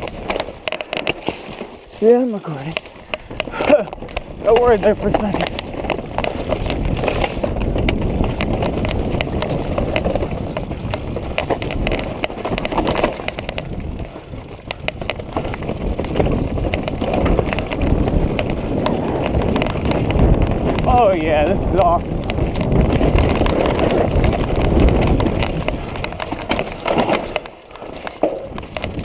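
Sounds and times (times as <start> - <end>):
bike clicking and rattling: 0.0 - 29.0
bike tyres rumbling: 0.0 - 29.0
wind on microphone: 2.6 - 29.0.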